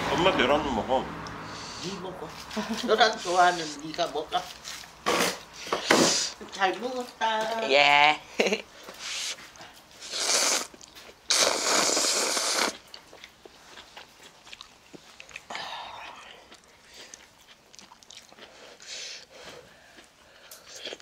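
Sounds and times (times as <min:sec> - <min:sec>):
noodles slurped from bowl: 0:10.0 - 0:12.9
chewing with small clicks: 0:10.7 - 0:11.3, 0:12.7 - 0:21.0.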